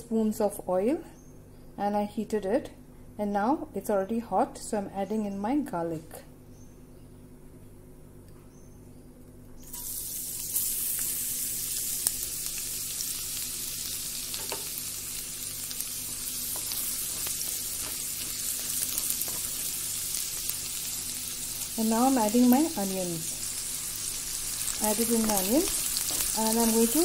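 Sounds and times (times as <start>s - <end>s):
garlic sizzling in hot oil: 9.6s - 27.0s.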